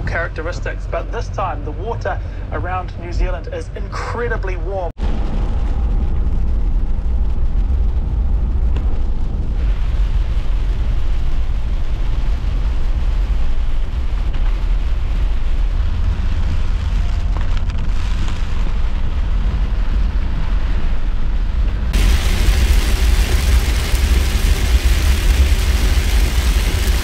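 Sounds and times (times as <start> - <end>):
wind rumbling on microphone: 4.4 - 27.0
heavy rain hiss: 6.9 - 17.3, 22.0 - 27.0.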